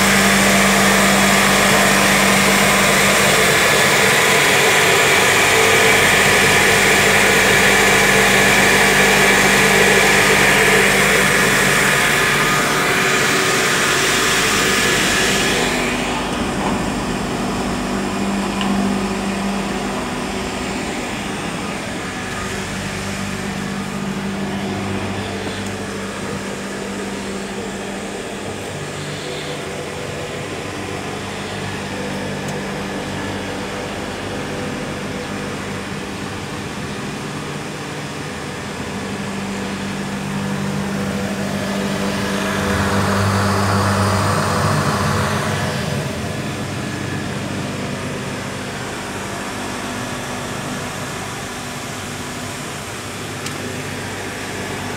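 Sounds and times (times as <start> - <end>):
loud airy hiss: 0.0 - 32.1
machine motors and fans humming: 0.0 - 54.9.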